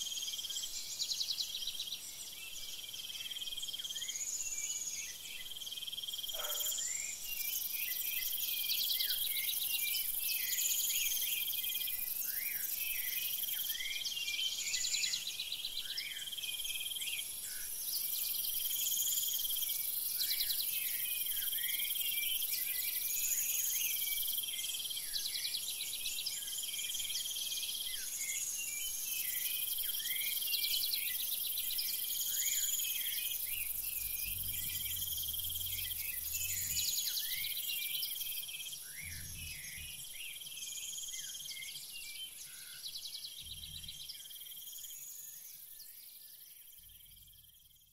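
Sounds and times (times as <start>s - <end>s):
insect chirps: 0.0s - 47.9s
high arched insect call: 16.2s - 47.9s
crickets trilling: 29.0s - 41.6s.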